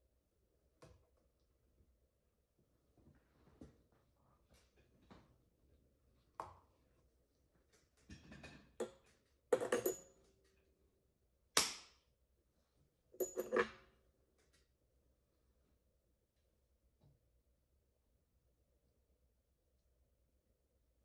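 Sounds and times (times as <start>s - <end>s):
metal instruments clicking and clinking: 13.2s - 13.8s.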